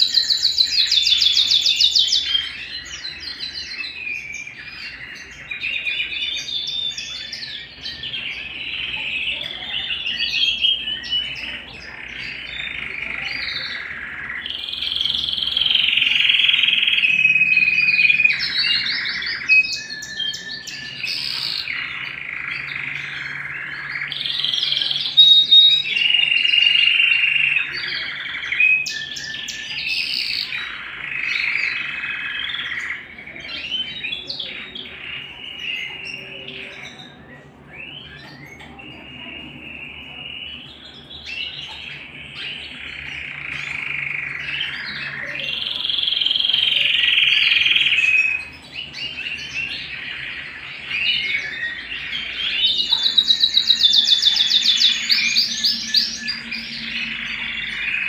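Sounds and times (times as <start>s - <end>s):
canary singing trills: 0.0s - 58.0s.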